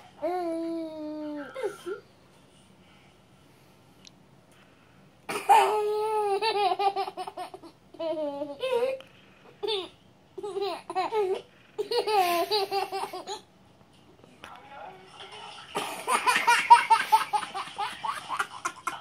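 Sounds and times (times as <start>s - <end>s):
toddler laughing: 15.8s - 19.0s.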